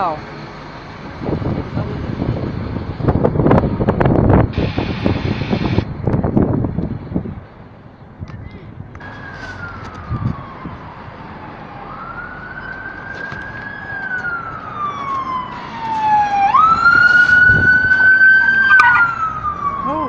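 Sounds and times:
police siren wailing: 0:09.0 - 0:20.0.

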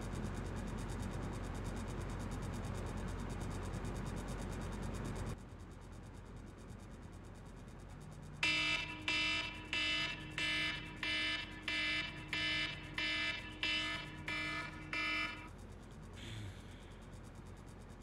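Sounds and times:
electronic alarm beeping: 0:08.4 - 0:15.5.

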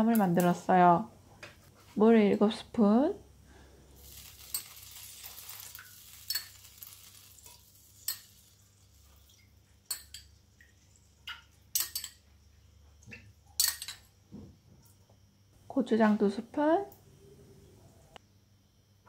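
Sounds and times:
faint hiss: 0:03.3 - 0:09.4
metal spoon clinking on ceramic bowl: 0:08.0 - 0:08.3, 0:09.9 - 0:10.3, 0:11.3 - 0:12.2, 0:13.6 - 0:14.1.

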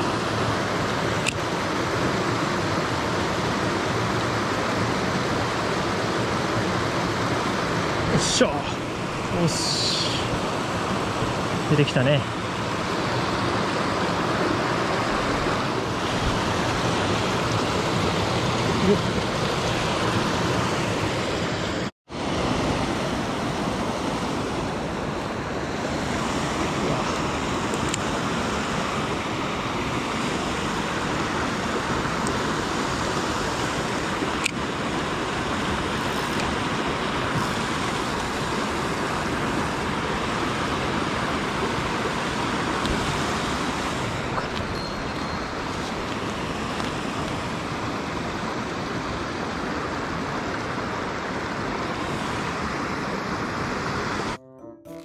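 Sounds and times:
creek rushing over cascades: 0:00.0 - 0:54.4.

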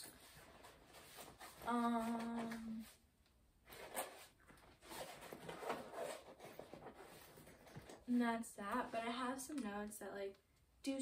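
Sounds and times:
rummaging in a backpack: 0:04.8 - 0:08.0.

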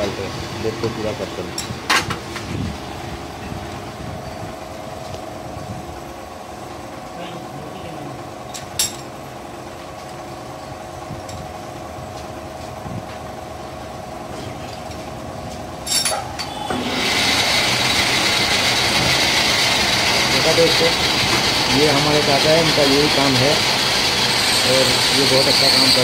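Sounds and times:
loud machine noise with hiss: 0:00.0 - 0:15.0, 0:15.8 - 0:26.0
metal lathe humming: 0:15.8 - 0:26.0.

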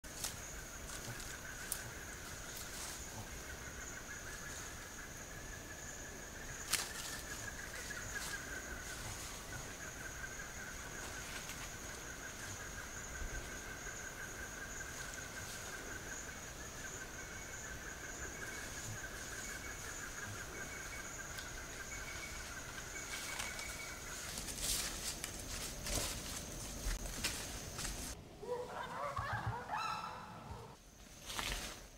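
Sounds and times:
snaps and rustles: 0:06.6 - 0:07.3, 0:31.2 - 0:31.9.

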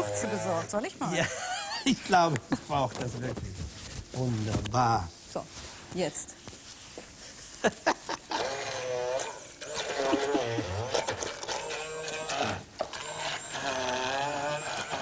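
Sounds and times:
stick blender motor whine: 0:00.0 - 0:01.0, 0:08.3 - 0:15.0.

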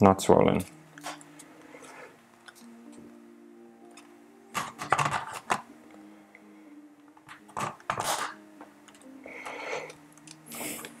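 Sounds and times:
faint background music: 0:00.0 - 0:11.0
plastic scrape: 0:07.5 - 0:08.4.

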